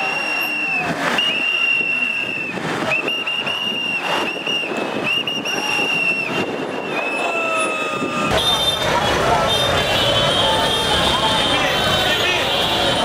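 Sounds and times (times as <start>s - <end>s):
whistle blasts: 0.0s - 7.6s
crowd and street noise: 0.0s - 13.0s.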